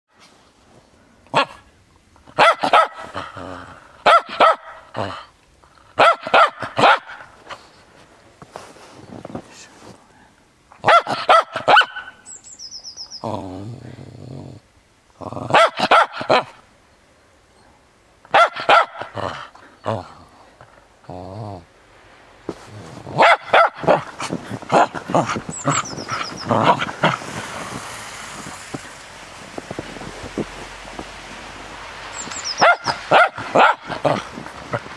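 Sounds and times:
dog barking: 1.3 - 1.6, 2.3 - 3.3, 4.0 - 5.2, 6.0 - 7.3, 10.8 - 12.2, 15.5 - 16.6, 18.3 - 19.5, 23.1 - 27.2, 32.4 - 34.4.

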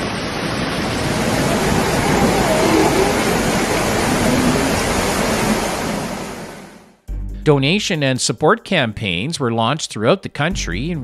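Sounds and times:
floodwater rushing: 0.0 - 7.0
faint voices: 1.4 - 4.8.

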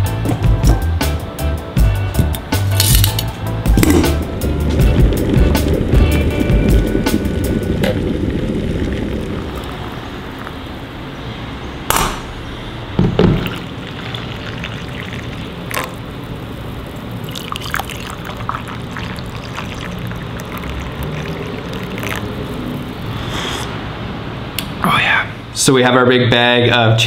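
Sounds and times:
tea pouring into mugs: 8.8 - 10.8, 13.4 - 23.2.

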